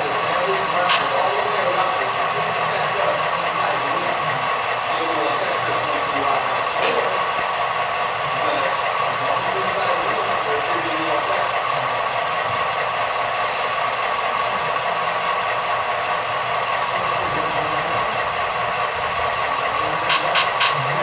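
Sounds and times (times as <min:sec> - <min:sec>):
model train wheels clattering: 0:00.0 - 0:21.0
quick clicks: 0:20.1 - 0:20.8.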